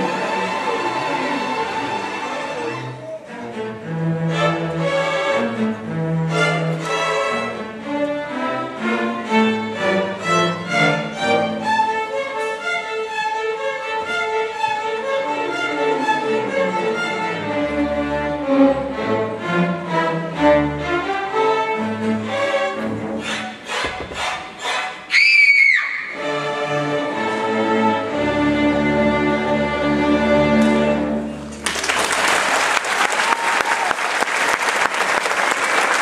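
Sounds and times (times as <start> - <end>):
string orchestra playing: 0.0 - 31.9.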